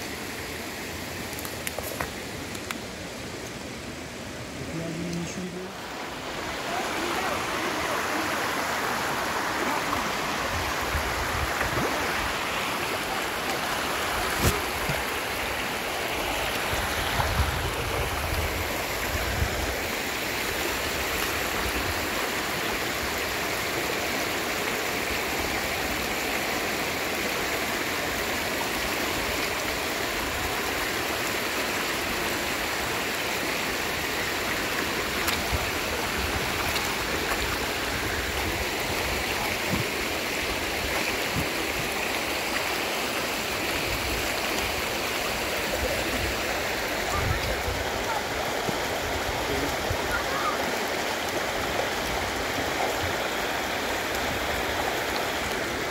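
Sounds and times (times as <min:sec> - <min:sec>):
stream water rushing: 0:00.0 - 0:55.9.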